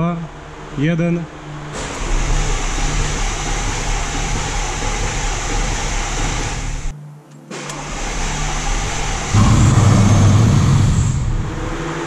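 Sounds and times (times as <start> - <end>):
car engine starting and running: 0.2 - 6.9, 7.5 - 12.0
steady hum: 8.4 - 12.0.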